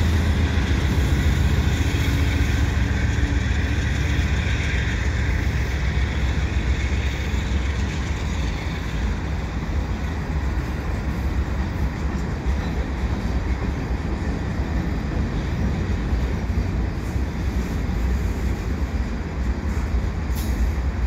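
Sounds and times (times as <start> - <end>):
freight train wheels rumbling on rails: 0.0 - 21.0
hiss: 17.0 - 21.0.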